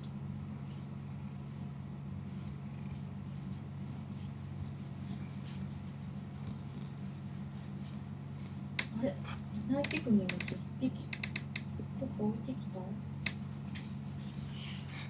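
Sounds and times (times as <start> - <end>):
cat purring: 0.6 - 10.5.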